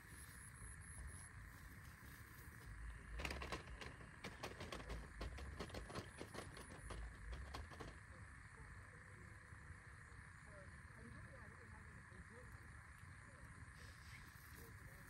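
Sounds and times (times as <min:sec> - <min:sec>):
grass crackling and rustling: 0:01.0 - 0:07.0.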